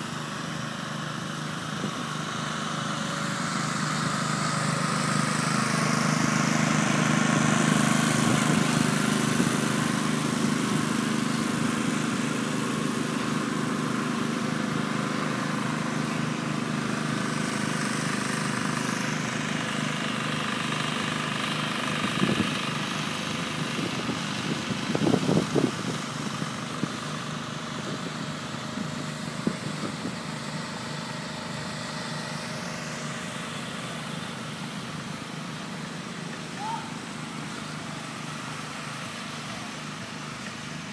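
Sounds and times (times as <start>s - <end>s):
small motor humming: 0.0s - 40.9s.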